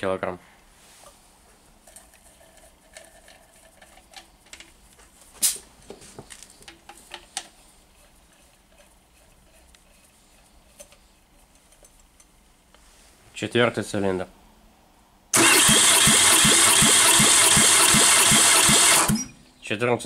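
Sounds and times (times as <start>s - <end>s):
compression tester hose clicking and scraping: 1.8s - 12.4s.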